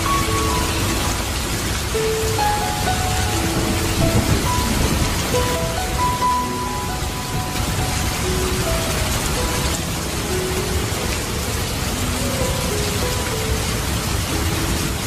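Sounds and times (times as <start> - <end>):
rain splashing in garden: 0.0 - 15.0
soft slow melody: 0.0 - 15.0.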